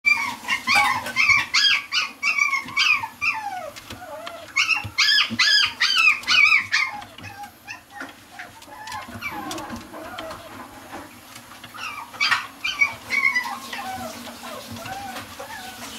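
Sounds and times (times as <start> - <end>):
puppy whining and yipping: 0.1 - 10.6, 11.7 - 15.9.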